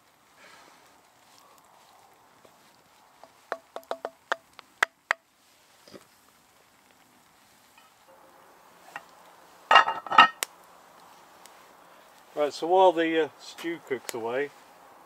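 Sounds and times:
metal clinking on cast iron pot: 0:09.7 - 0:10.4.

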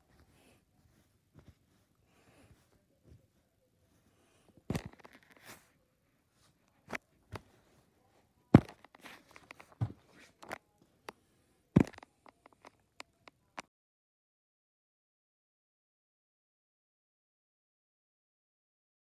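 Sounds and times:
faint rustling of shirts: 0:00.0 - 0:13.6.

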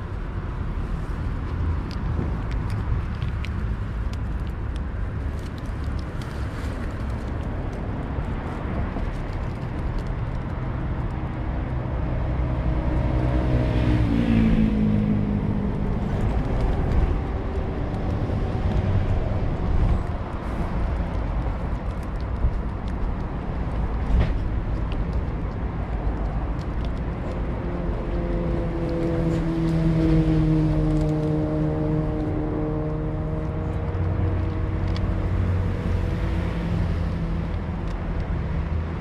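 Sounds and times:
city road traffic rumble: 0:00.0 - 0:39.0
engine passing by: 0:06.2 - 0:22.2, 0:25.6 - 0:39.0.

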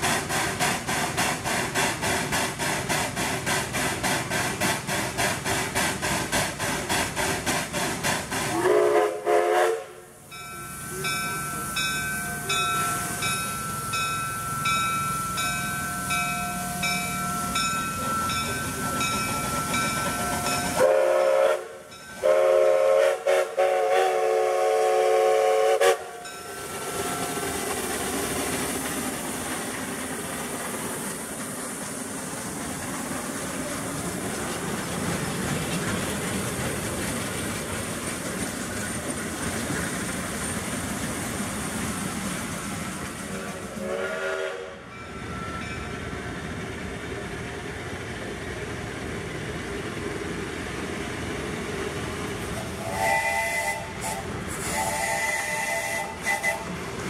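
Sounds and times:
train rumbling and clattering: 0:00.0 - 0:57.0
steam locomotive whistle: 0:08.5 - 0:14.0, 0:20.4 - 0:27.3, 0:43.7 - 0:45.0, 0:52.6 - 0:56.8.

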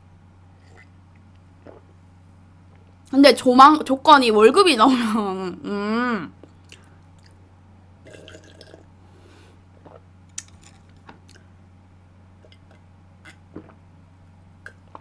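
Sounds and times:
steady low hum: 0:00.0 - 0:15.0
person gulping a drink: 0:00.6 - 0:01.0, 0:01.6 - 0:02.0, 0:08.0 - 0:08.9, 0:09.7 - 0:11.5, 0:12.4 - 0:13.9, 0:14.6 - 0:15.0.

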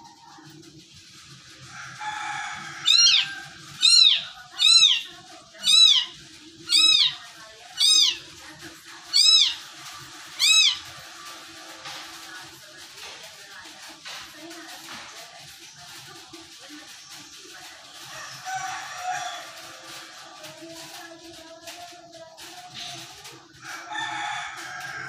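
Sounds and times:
kitten meowing: 0:03.8 - 0:05.0, 0:06.7 - 0:07.2, 0:09.2 - 0:09.6, 0:10.4 - 0:10.8.

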